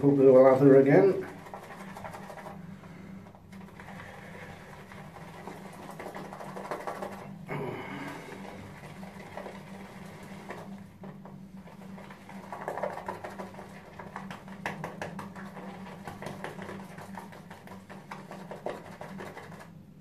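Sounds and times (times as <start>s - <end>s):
shaving brush swishing lather: 0.0s - 2.8s, 3.5s - 7.4s, 8.1s - 19.8s
faint low hum: 0.0s - 20.0s.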